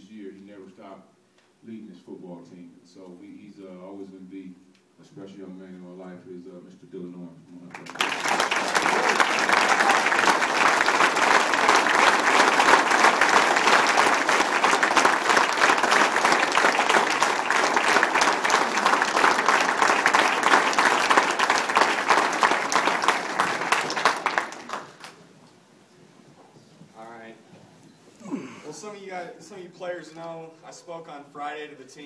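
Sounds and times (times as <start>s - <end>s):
audience applauding: 7.7s - 25.2s.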